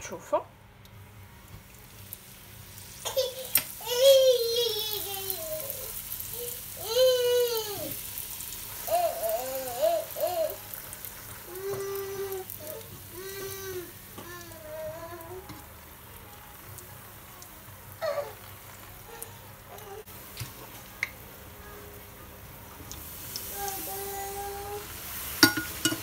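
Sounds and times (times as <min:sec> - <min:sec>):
dough sizzling in hot oil: 0:00.9 - 0:26.0.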